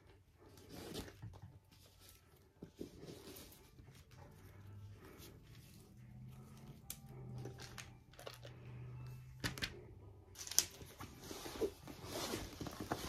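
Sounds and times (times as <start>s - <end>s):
faint low hum: 0.0s - 12.0s
paper wrapping rustling: 10.4s - 13.0s.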